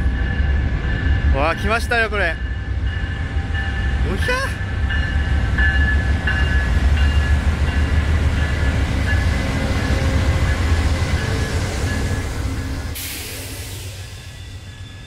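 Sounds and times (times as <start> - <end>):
diesel locomotive engine rumble: 0.0 - 15.0
high ringing tone: 13.8 - 15.0.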